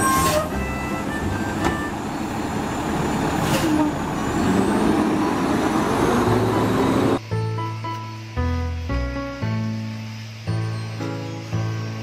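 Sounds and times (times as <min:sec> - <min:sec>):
diesel truck engine running: 0:00.0 - 0:07.3.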